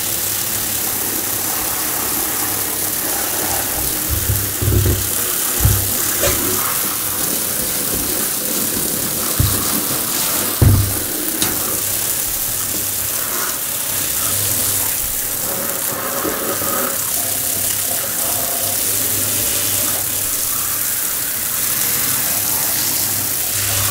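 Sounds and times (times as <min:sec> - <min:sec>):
shower water spraying: 0:00.0 - 0:23.9
dull thump: 0:03.7 - 0:06.8, 0:07.8 - 0:12.0.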